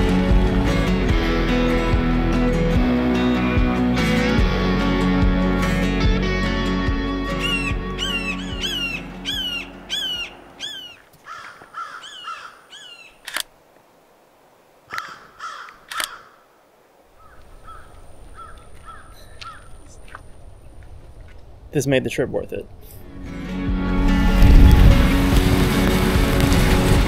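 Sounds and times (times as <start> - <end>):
hawk screaming calls: 7.4 - 13.2
sharp clicks: 13.2 - 13.5, 15.7 - 16.2.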